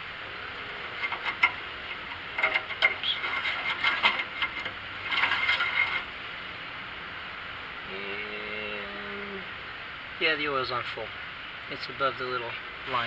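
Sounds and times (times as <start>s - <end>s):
metal dipstick clicking and scraping: 0.8s - 6.1s.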